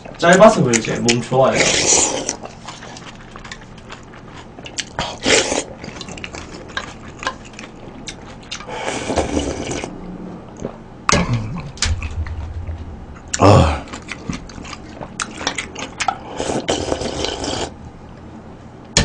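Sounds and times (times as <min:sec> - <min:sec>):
slurping and chewing noodle soup: 0:00.0 - 0:10.0, 0:13.8 - 0:17.8.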